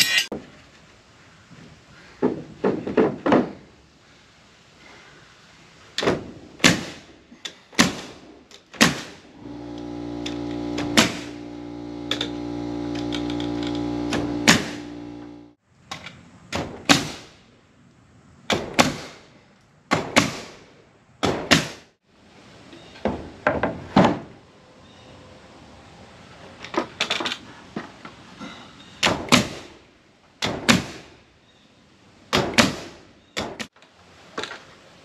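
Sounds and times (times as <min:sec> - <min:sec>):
steady motor hum: 0:09.4 - 0:15.6.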